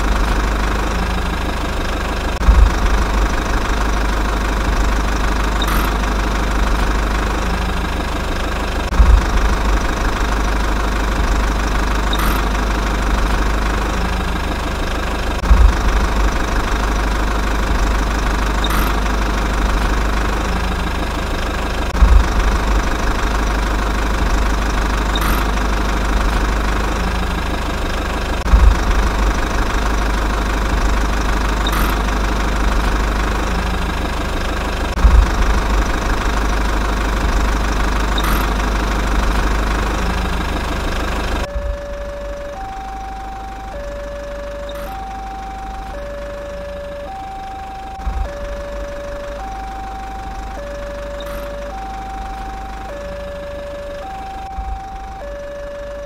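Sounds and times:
truck diesel engine idling: 0.0 - 56.0
low thump: 2.4 - 3.7, 8.9 - 10.2, 15.4 - 16.5, 21.9 - 23.2, 28.4 - 29.4, 35.0 - 36.3.

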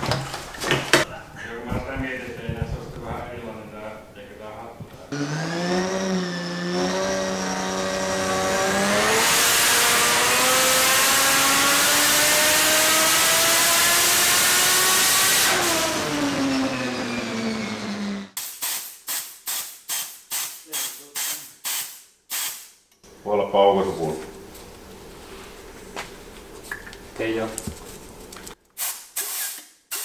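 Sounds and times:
turbocharged race engine revving: 5.1 - 18.4.

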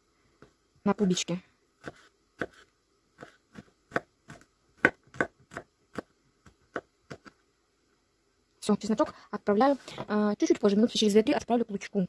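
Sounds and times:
knife chopping on wooden board: 1.8 - 2.6, 3.2 - 6.1.

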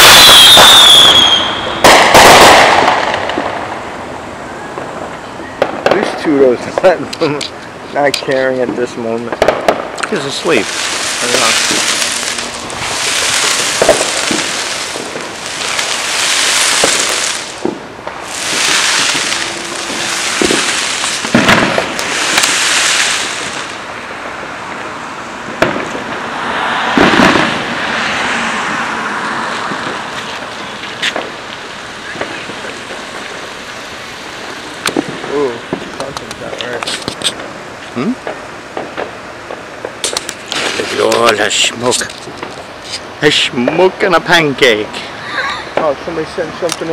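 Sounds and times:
fireworks bangs and pops: 0.0 - 4.1, 4.7 - 45.1, 45.7 - 46.9
fireworks hissing crackle: 0.0 - 46.9.

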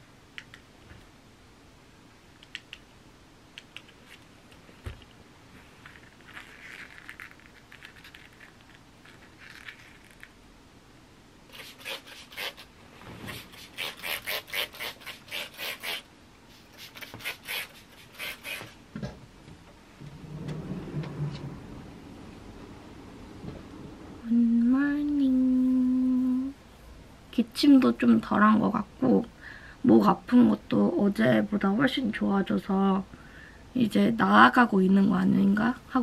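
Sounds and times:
bedding rustling: 12.8 - 13.6, 18.7 - 24.3.

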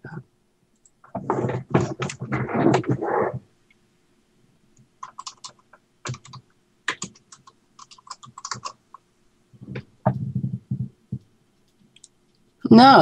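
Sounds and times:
typing on computer keyboard: 5.0 - 8.8.

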